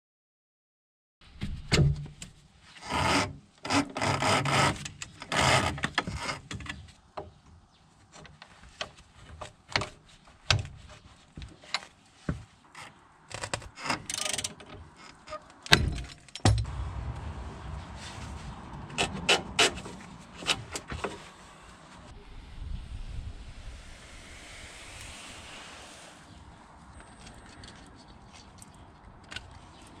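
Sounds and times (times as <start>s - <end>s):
sharp metal knocks: 15.7s - 16.7s.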